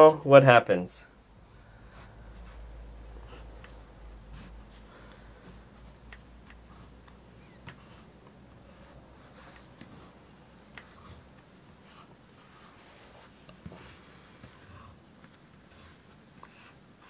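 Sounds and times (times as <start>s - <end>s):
pencil scratching on paper: 1.9s - 17.0s
pencil ticking on table: 5.4s - 10.1s, 10.7s - 12.1s, 13.5s - 17.0s.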